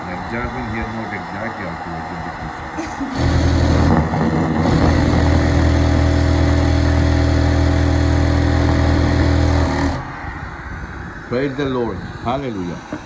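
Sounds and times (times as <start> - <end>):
sewing machine humming: 3.0 - 10.0.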